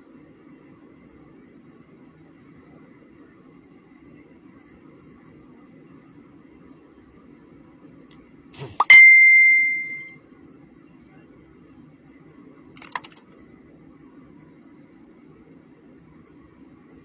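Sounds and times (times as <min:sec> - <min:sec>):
sharp ringing ding: 0:08.8 - 0:10.2.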